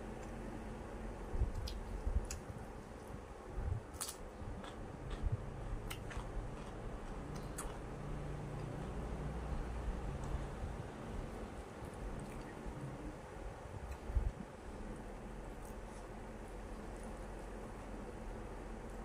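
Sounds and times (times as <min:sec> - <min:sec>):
chewing with mouth clicks: 0:03.9 - 0:07.9, 0:11.8 - 0:13.0.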